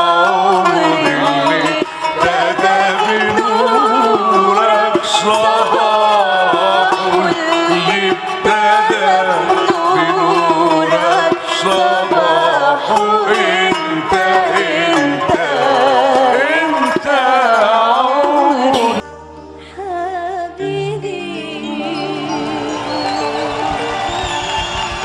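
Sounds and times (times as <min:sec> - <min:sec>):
woman singing: 0:00.0 - 0:24.3
ensemble with percussion: 0:21.7 - 0:25.0.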